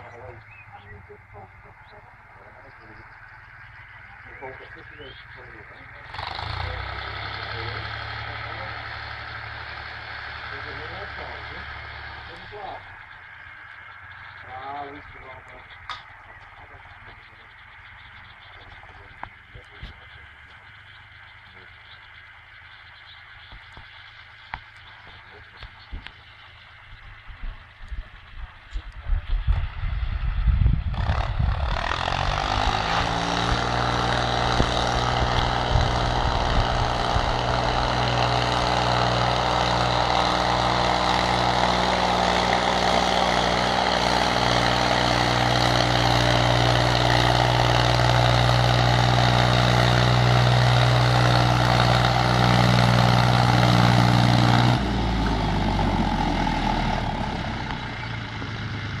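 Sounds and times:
tractor diesel engine running: 0.0s - 59.0s.

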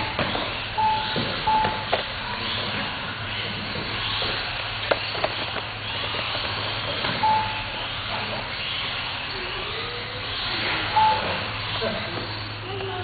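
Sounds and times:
rc car motors whining: 0.0s - 13.0s
short beeps: 0.8s - 1.9s, 7.2s - 7.7s, 10.9s - 11.4s.

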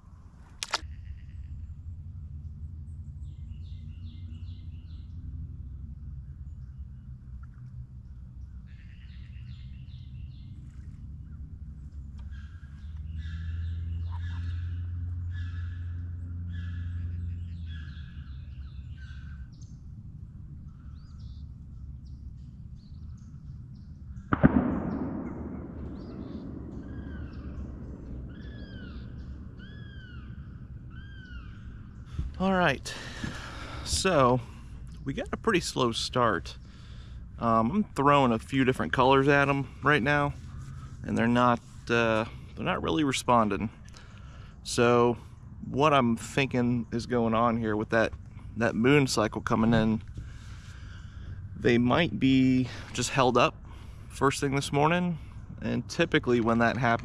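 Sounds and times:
birds chirping and trilling: 0.0s - 57.0s
low steady hum: 0.0s - 57.0s
bird whistling: 12.2s - 19.8s, 28.3s - 32.2s.

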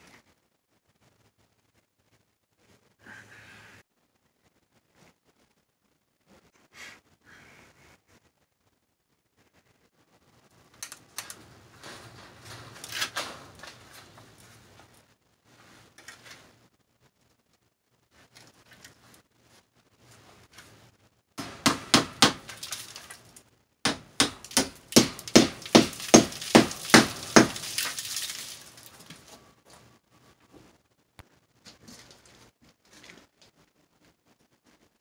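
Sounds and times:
hammer striking metal lath: 21.4s - 22.5s, 23.9s - 27.6s.

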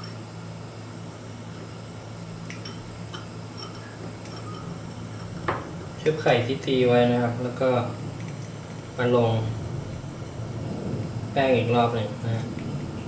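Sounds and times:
low hum: 0.0s - 13.0s
light clinks: 2.4s - 6.8s.

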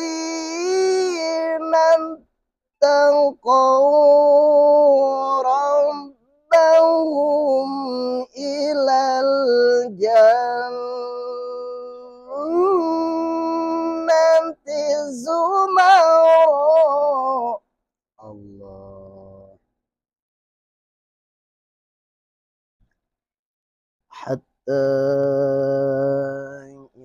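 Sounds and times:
man chanting recitation: 0.0s - 2.2s, 2.8s - 17.6s, 18.2s - 19.6s, 24.2s - 27.0s.

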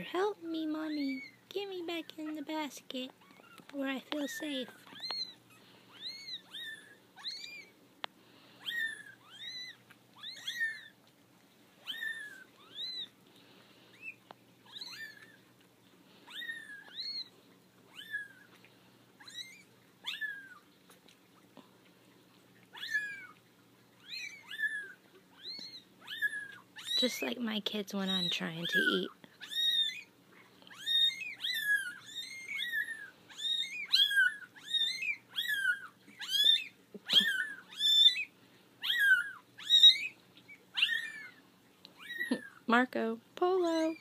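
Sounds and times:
kittens mewing: 30.7s - 42.6s.

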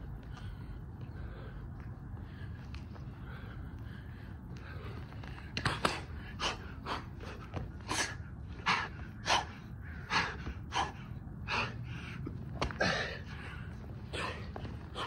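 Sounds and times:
man breathing hard: 0.0s - 15.0s.

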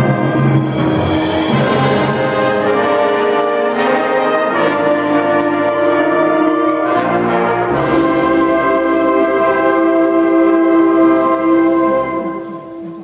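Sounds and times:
wind band playing brass chords: 0.0s - 13.0s.

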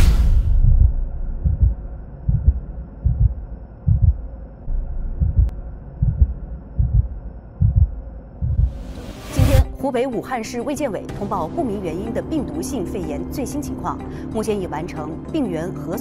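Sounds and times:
heartbeat thumps: 0.0s - 9.8s.

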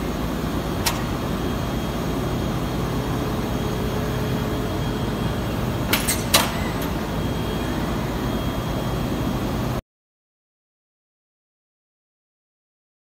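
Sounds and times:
machine hum: 0.0s - 9.8s.

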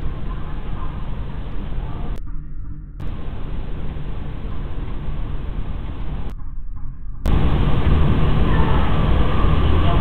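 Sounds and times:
low hum: 0.0s - 10.0s
microphone hiss: 3.0s - 6.3s, 7.3s - 10.0s.

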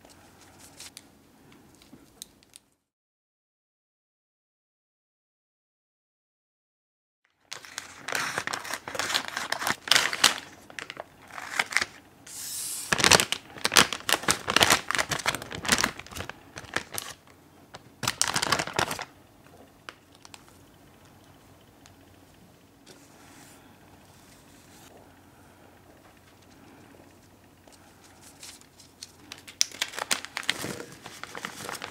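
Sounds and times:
plastic bag rustling and crackling: 7.5s - 12.0s, 12.8s - 19.2s, 28.0s - 31.9s.

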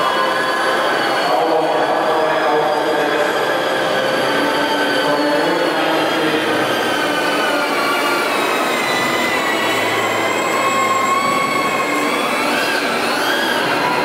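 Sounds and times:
electric fan motors whining: 5.0s - 14.0s.

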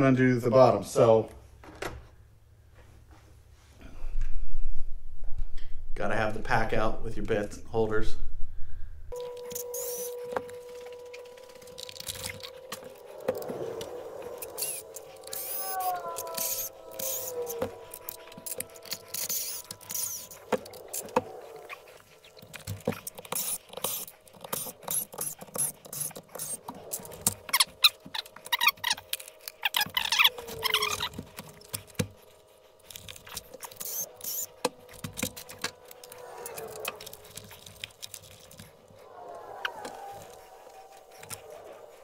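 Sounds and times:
short squeaks: 9.2s - 31.8s
small parts clicking and rattling: 11.5s - 21.4s, 22.0s - 38.8s.

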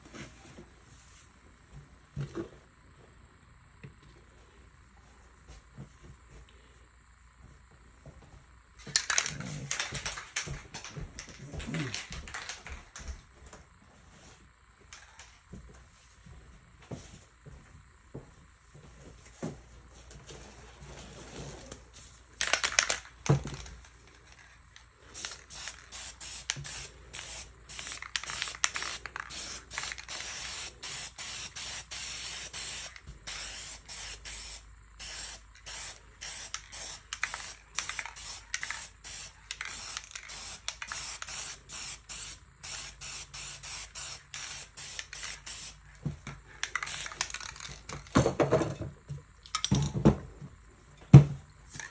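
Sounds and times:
spray paint can hissing: 25.1s - 45.8s, 46.8s - 47.6s.

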